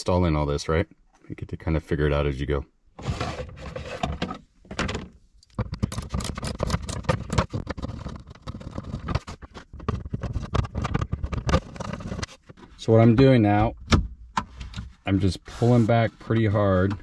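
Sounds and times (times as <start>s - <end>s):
hard plastic bin clicking and scraping: 3.0s - 13.8s, 15.6s - 17.0s.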